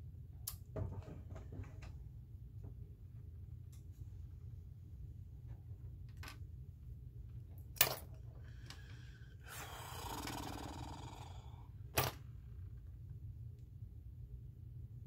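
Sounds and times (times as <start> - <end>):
steady low hum: 0.0 - 15.0
breathy grunt-like voice: 9.4 - 11.7.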